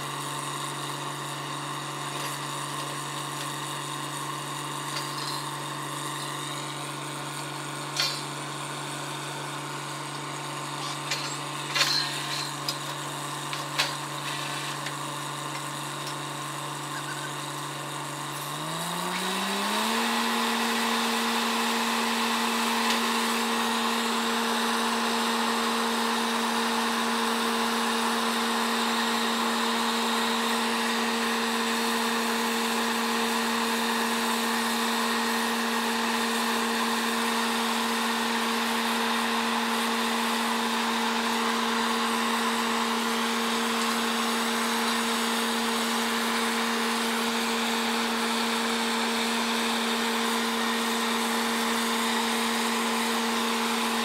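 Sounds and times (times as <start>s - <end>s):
drilling rig engine running: 0.0s - 54.0s
sharp metal clanks: 4.9s - 5.7s, 7.9s - 8.5s, 10.7s - 14.8s.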